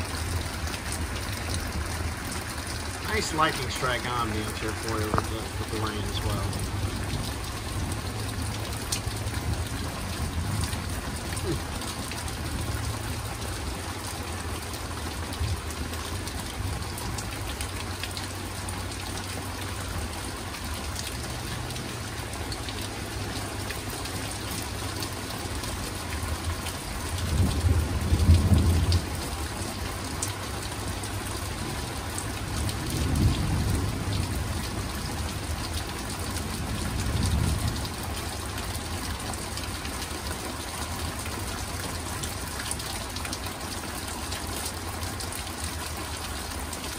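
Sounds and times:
steady rain falling: 0.0s - 46.9s
low rumbles of thunder: 6.4s - 13.4s, 27.1s - 29.5s, 32.5s - 35.6s, 36.4s - 38.2s.

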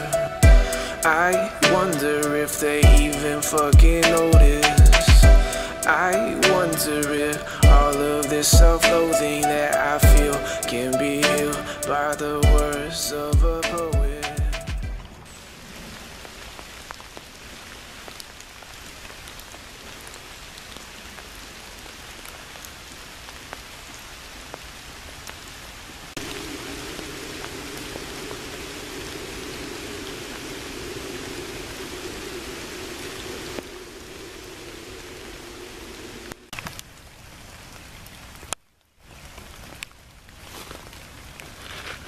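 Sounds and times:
rain falling on leaves: 0.0s - 14.3s, 14.9s - 42.0s
drips ticking: 0.1s - 15.0s
low rushing: 26.2s - 36.6s.

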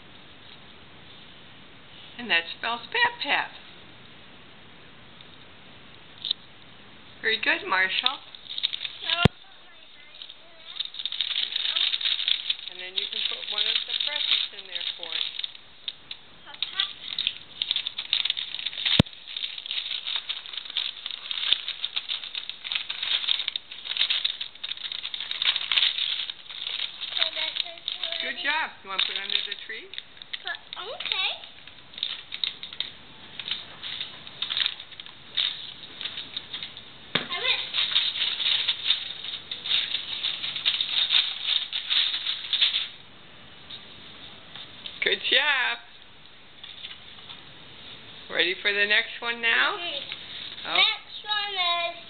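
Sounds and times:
paper bag rustling and crinkling: 7.4s - 15.6s, 16.5s - 43.0s, 49.7s - 52.0s.

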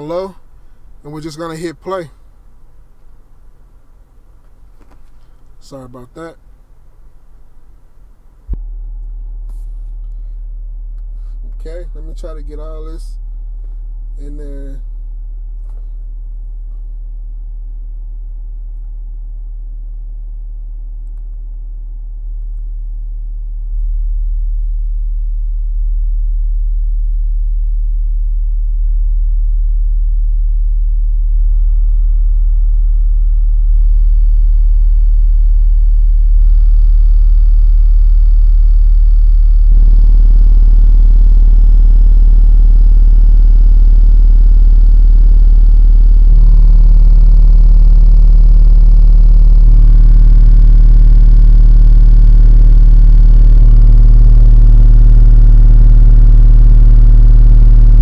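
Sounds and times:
low bass test tone: 0.0s - 58.0s
buzzing rattle: 31.5s - 58.0s.

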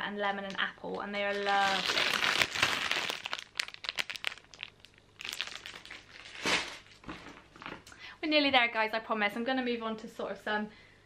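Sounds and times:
plastic packaging crinkling: 1.2s - 7.9s.

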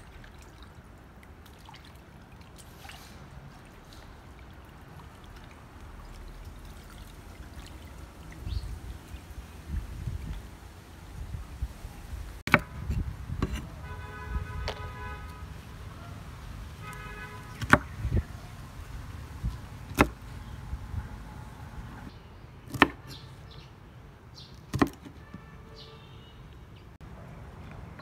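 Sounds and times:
knife chopping on wooden board: 12.5s - 12.7s, 19.9s - 20.2s, 24.7s - 25.1s.

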